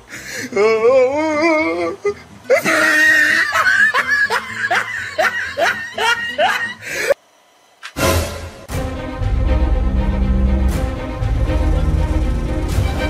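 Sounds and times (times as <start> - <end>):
person wailing: 0.3 - 7.2.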